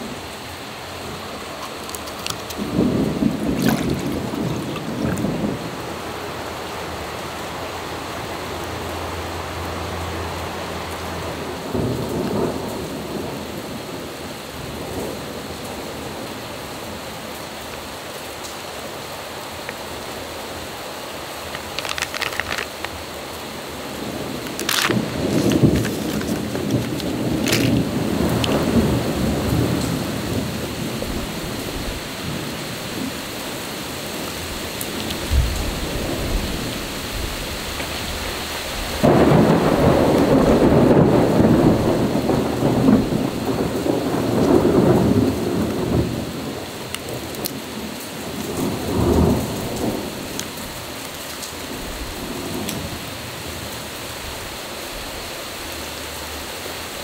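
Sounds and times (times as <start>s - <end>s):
plastic sachets crinkling: 1.4s - 5.4s, 21.5s - 23.2s, 24.4s - 28.8s.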